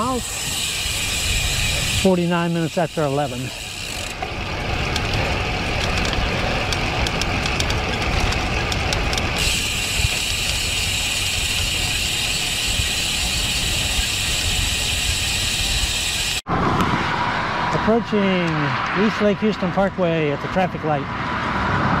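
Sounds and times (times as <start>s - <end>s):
wind and road rumble: 0.0s - 22.0s.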